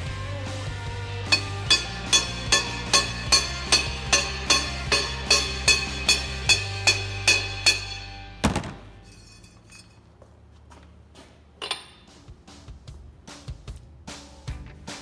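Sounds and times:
background music with beat and bass: 0.0s - 8.2s, 12.1s - 15.0s
hammer knock on metal: 1.3s - 8.0s.

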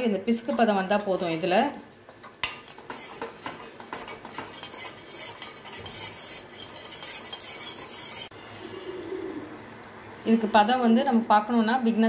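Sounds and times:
spoon scraping and clinking in pot: 2.2s - 8.3s.

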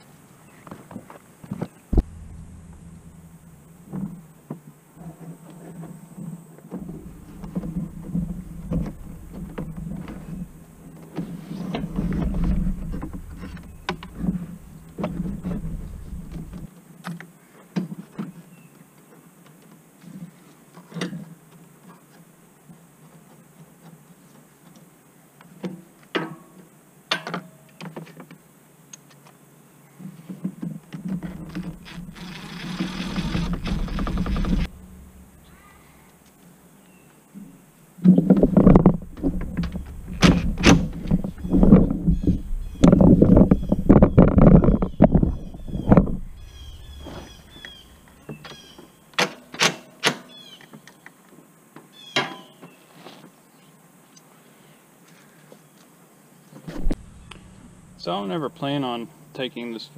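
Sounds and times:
plastic panels clicking and knocking: 6.8s - 16.7s, 30.6s - 35.5s, 38.1s - 47.8s.

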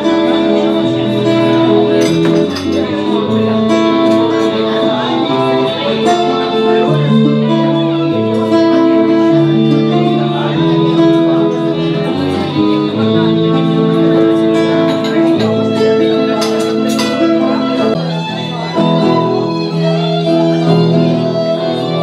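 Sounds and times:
instrumental music with held notes: 0.0s - 22.0s.

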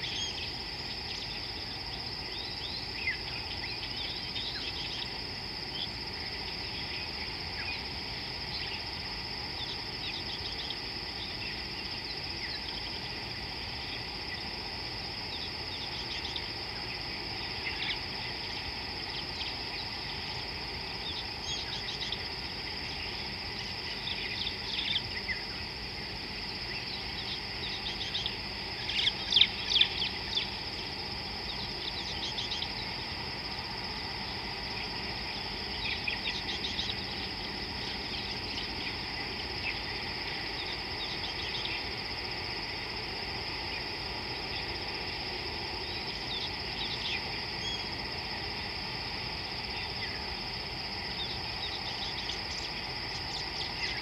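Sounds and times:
insects droning: 0.0s - 54.0s.

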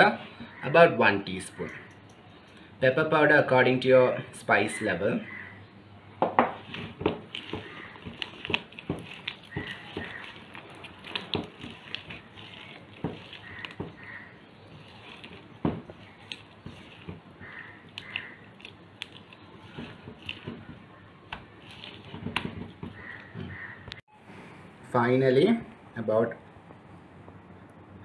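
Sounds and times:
hands slapping wet batter: 6.6s - 14.1s, 14.8s - 23.3s.

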